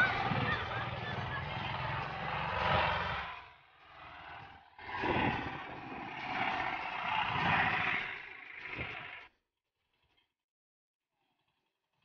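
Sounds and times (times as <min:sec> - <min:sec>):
motorcycle engine under load: 0:00.0 - 0:03.4.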